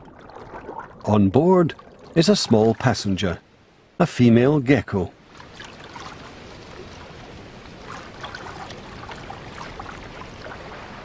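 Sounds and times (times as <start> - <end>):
small splashes: 0.0 - 1.1, 5.3 - 11.0
water lapping: 0.0 - 3.4, 5.2 - 11.0.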